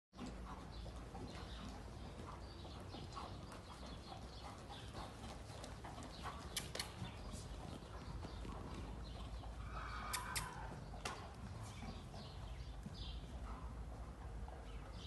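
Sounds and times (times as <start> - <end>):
muffled hoofbeats on sand: 0.2 - 15.0
sharp clicks: 6.4 - 7.0, 10.1 - 11.2.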